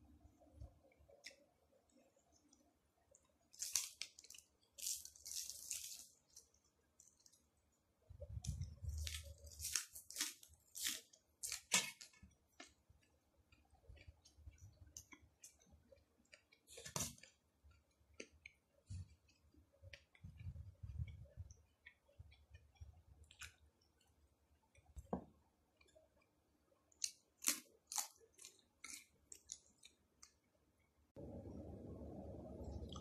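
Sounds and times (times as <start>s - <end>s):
crisp crunching: 3.5s - 7.4s, 8.8s - 12.7s
wet chewing sounds: 8.4s - 25.1s, 26.9s - 30.5s.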